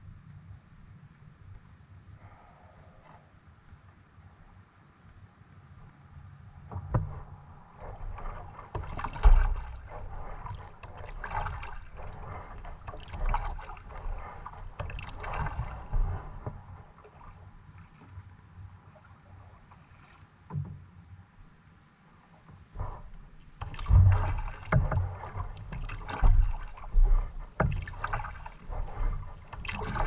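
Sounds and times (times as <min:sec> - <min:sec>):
water splashing and sloshing: 0:06.4 - 0:30.0.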